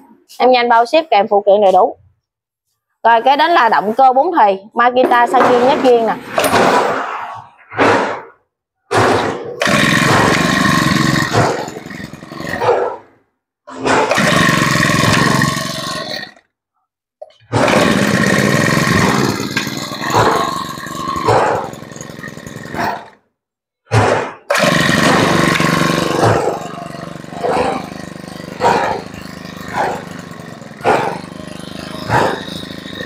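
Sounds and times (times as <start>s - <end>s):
brush-cutter engine revving: 9.0s - 12.9s, 13.7s - 16.4s, 17.4s - 23.2s, 24.1s - 33.0s.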